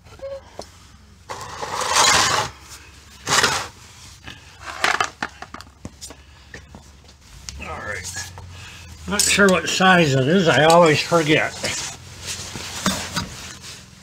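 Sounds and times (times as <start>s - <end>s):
pan scraping on concrete floor: 1.3s - 2.6s, 3.2s - 3.8s.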